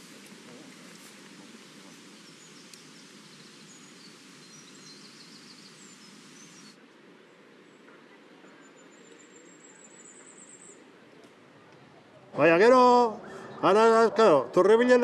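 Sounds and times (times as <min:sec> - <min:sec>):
small birds chirping: 0:00.0 - 0:11.9.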